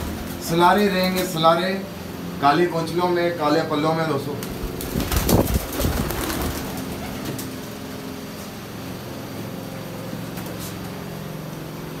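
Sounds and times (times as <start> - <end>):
fan motor hum: 0.0 - 12.0
pigeon wings fluttering: 4.4 - 7.7.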